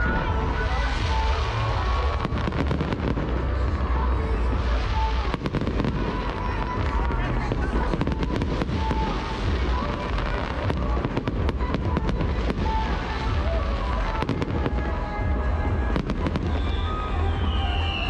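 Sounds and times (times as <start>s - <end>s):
firework crackling: 0.0s - 18.0s
sharp firework cracks: 0.0s - 18.0s
falling whistle tone: 16.5s - 18.0s.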